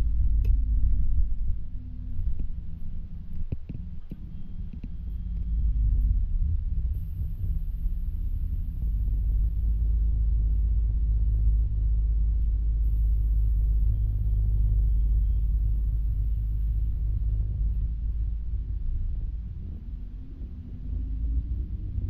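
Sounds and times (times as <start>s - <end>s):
bus engine idling: 6.6s - 22.0s.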